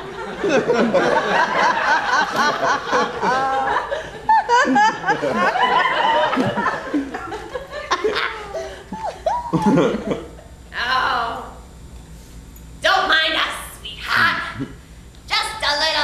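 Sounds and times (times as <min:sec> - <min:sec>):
audience laughing: 0:00.0 - 0:10.5.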